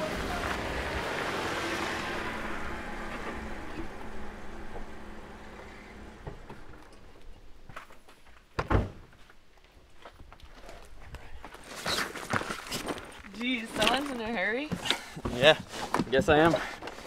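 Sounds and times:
car engine running: 0:00.0 - 0:07.7
car door shutting: 0:02.4 - 0:07.2.

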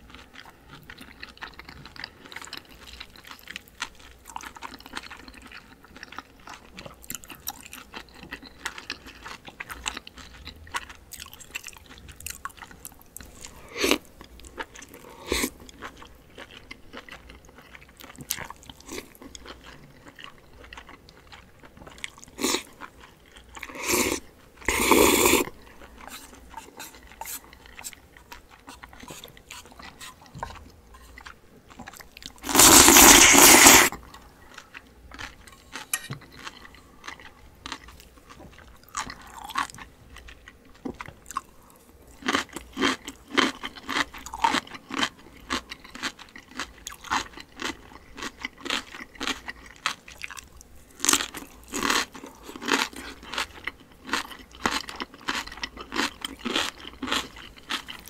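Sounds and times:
crunching of crisp food: 0:00.0 - 0:58.0
quiet chewing: 0:00.0 - 0:58.0
noodles being slurped: 0:23.7 - 0:31.2, 0:32.3 - 0:34.0.

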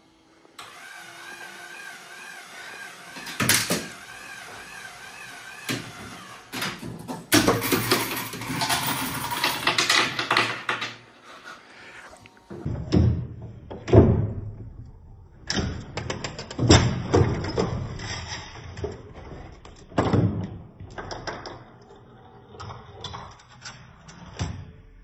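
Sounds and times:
machine parts knocking and clattering: 0:05.8 - 0:11.0.

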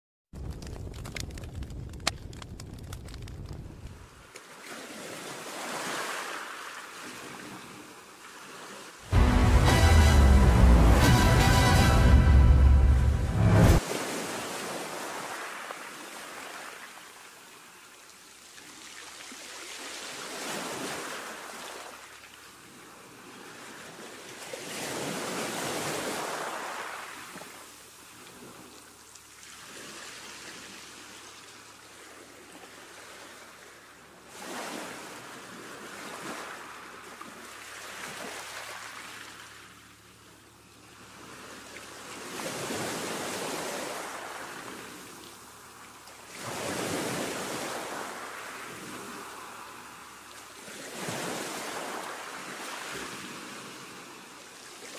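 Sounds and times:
ocean waves washing in: 0:04.0 - 0:17.2, 0:22.8 - 0:39.8, 0:41.0 - 0:54.7.

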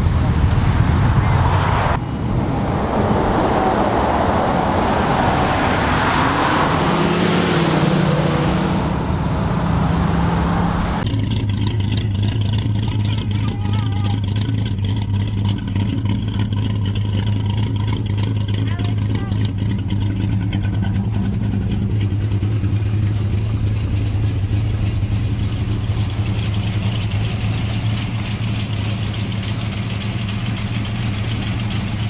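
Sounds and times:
car engine revving and rushing: 0:00.0 - 0:32.0
car engine idling: 0:07.2 - 0:32.0.

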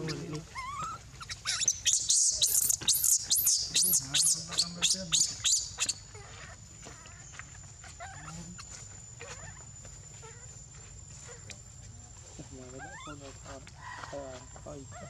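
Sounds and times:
baby monkey distress squeals: 0:00.0 - 0:10.6, 0:12.8 - 0:13.2.

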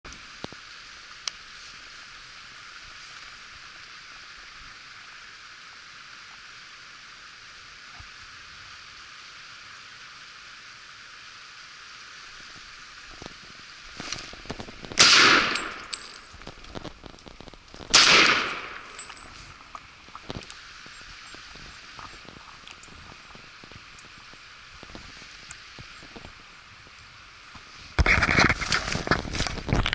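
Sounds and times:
steady background hiss: 0:00.1 - 0:29.9
loud gunshots: 0:14.9 - 0:15.8, 0:17.9 - 0:18.9.

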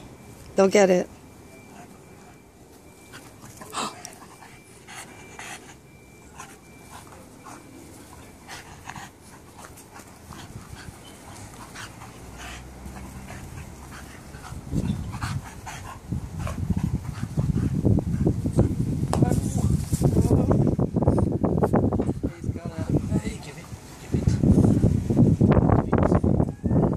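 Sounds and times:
dogs panting: 0:01.6 - 0:19.0, 0:21.2 - 0:24.9.

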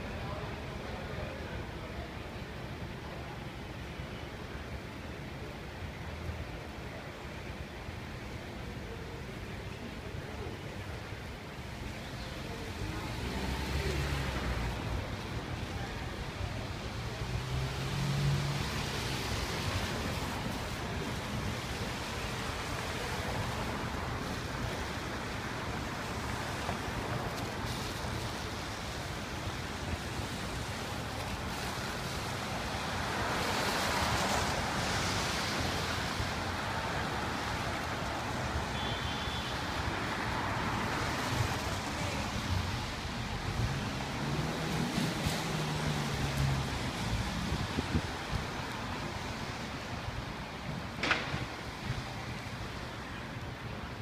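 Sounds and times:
tyres hissing on wet pavement: 0:11.4 - 0:54.0.

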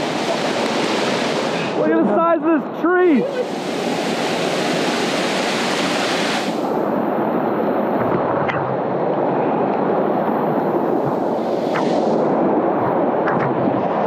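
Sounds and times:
river rushing down rapids: 0:00.0 - 0:08.0
high hiss: 0:03.0 - 0:06.9, 0:10.9 - 0:12.3.

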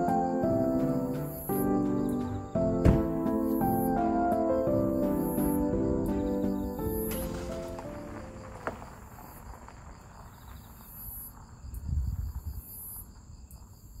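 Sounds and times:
background music: 0:00.0 - 0:08.7
high insect buzz: 0:00.0 - 0:09.4
insects chirping: 0:00.0 - 0:14.0
short knock: 0:02.8 - 0:03.2.

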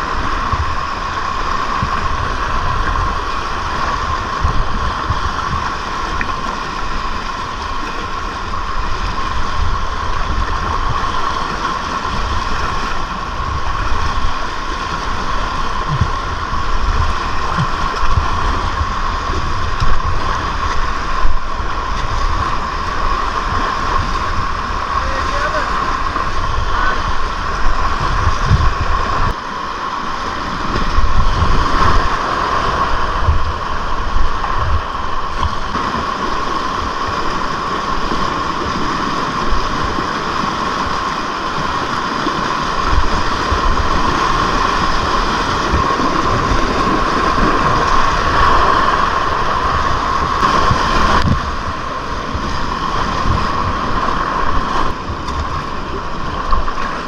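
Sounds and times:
wind buffeting microphone: 0:00.0 - 0:29.4, 0:30.3 - 0:57.0
rapids rushing and splashing: 0:00.0 - 0:57.0.

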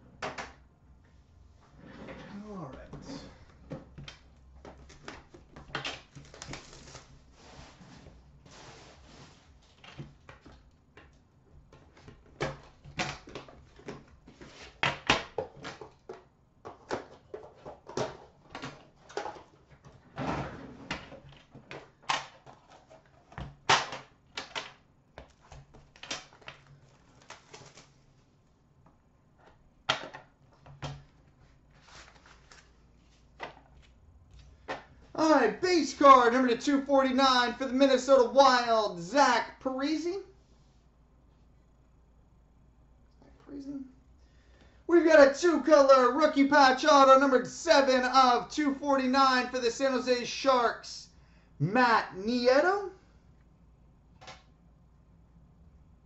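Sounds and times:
packaging rustling and clicking: 0:24.4 - 0:28.0.

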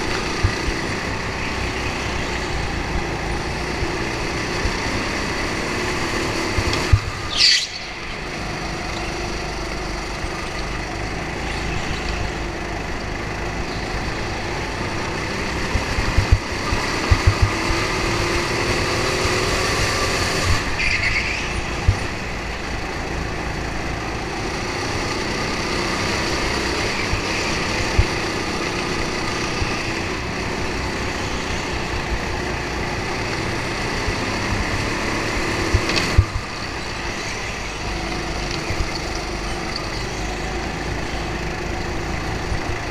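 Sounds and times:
go-kart engine running: 0:00.0 - 0:42.9
squeal falling in pitch: 0:07.3 - 0:08.2.

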